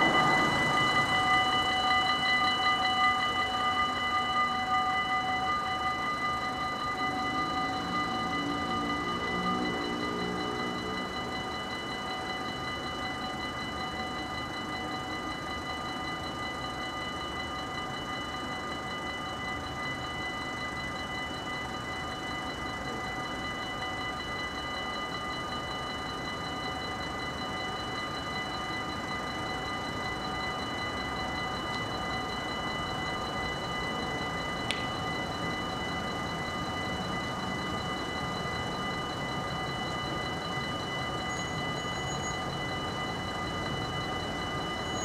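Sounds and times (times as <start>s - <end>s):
continuous rumble: 0.0s - 13.2s
level crossing bells ringing: 0.0s - 45.0s.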